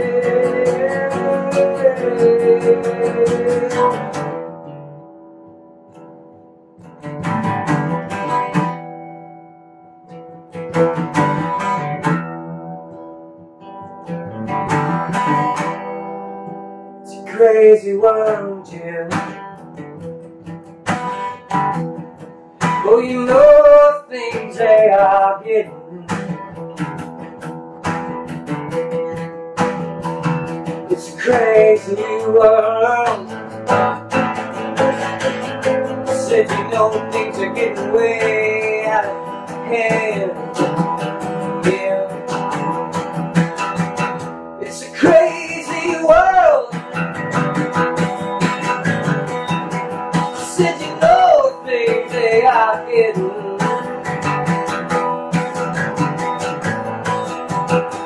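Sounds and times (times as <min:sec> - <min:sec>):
man singing: 0:00.0 - 0:04.6, 0:17.0 - 0:19.8, 0:22.6 - 0:26.6, 0:30.5 - 0:58.0
acoustic guitar strumming chords: 0:00.0 - 0:58.0.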